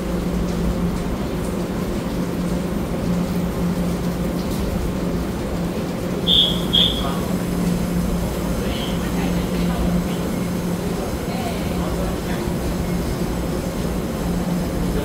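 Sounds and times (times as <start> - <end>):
train equipment humming: 5.2 - 15.0
short high door beeps: 6.3 - 7.2.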